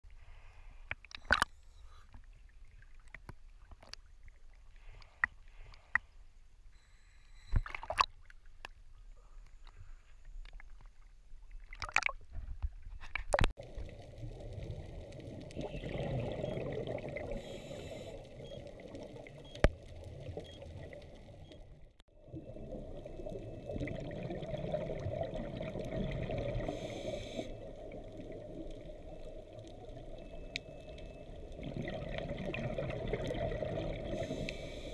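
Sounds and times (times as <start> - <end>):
water rushing: 13.6 - 21.7.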